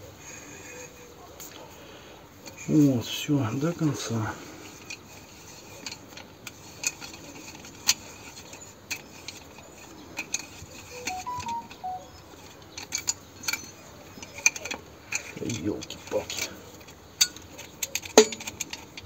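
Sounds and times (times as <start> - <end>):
metal tap and wrench clicking: 5.8 - 19.0.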